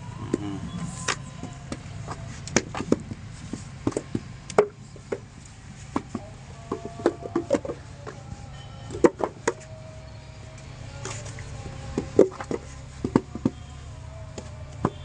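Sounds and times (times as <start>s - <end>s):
wooden mould knocking on sandy ground: 11.9s - 13.6s.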